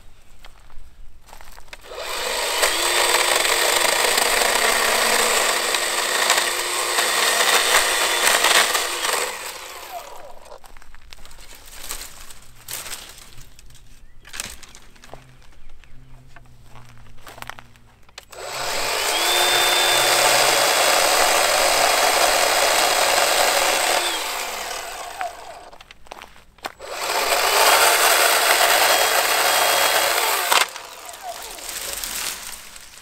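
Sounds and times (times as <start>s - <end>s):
electric chainsaw cutting wood: 1.8s - 10.6s, 18.2s - 25.9s, 26.8s - 33.0s.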